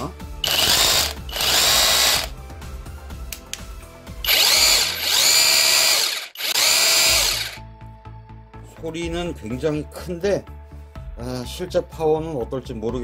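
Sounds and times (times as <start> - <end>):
drill motor whining: 0.4 - 2.4, 4.2 - 7.6.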